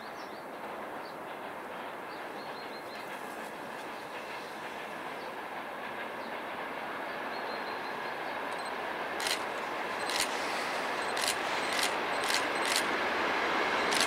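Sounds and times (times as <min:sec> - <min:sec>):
diesel locomotive approaching: 0:00.0 - 0:14.0
wheels clicking over track: 0:08.5 - 0:14.0.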